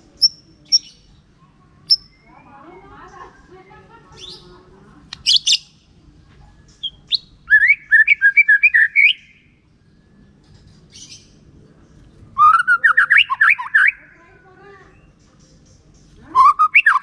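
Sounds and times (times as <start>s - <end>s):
bird singing whistled notes: 0.2s - 1.0s, 1.9s - 3.0s, 5.2s - 5.8s, 6.7s - 10.1s, 12.4s - 14.0s, 16.3s - 17.0s.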